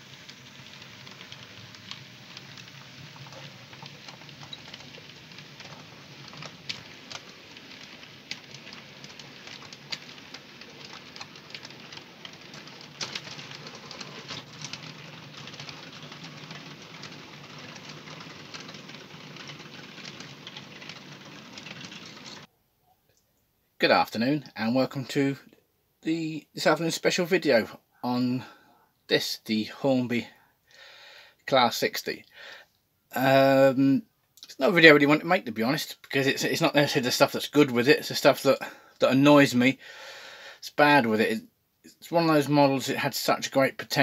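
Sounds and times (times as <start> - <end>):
model train motor hum: 0.0 - 22.5
wagon wheels rattling: 0.0 - 22.5
wheels clicking on rails: 0.0 - 22.5, 34.4 - 39.7.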